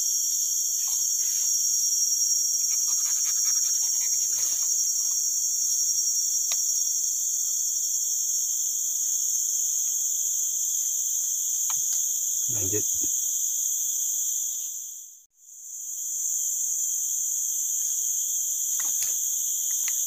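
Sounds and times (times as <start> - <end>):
shrill insect chorus: 0.0 - 20.0
faint small clicks: 18.8 - 20.0.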